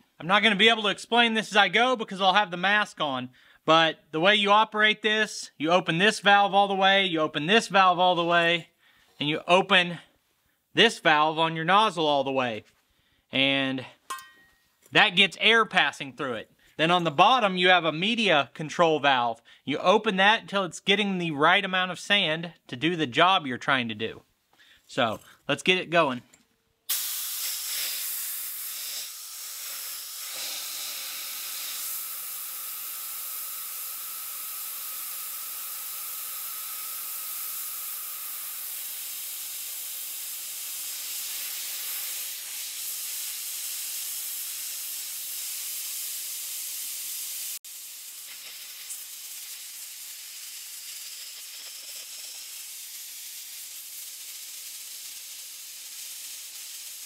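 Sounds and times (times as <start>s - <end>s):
sandblaster hissing: 26.9s - 57.0s.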